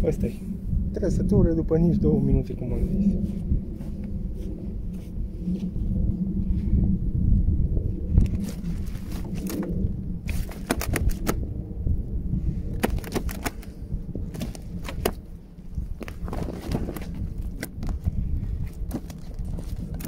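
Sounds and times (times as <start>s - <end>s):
low rumble: 0.0s - 20.0s
sharp irregular clicks and taps: 12.8s - 13.7s.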